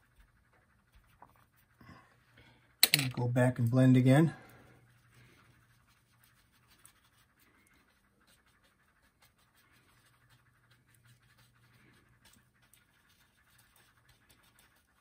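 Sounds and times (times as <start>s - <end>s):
low steady hum: 0.0s - 15.0s
paintbrush scratching on panel: 4.8s - 15.0s.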